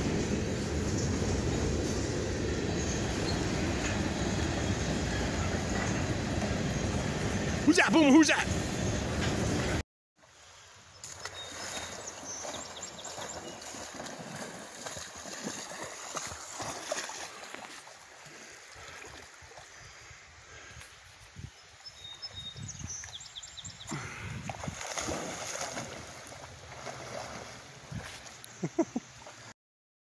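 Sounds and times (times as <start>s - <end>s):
dog splashing through water: 11.1s - 19.6s, 24.0s - 28.4s.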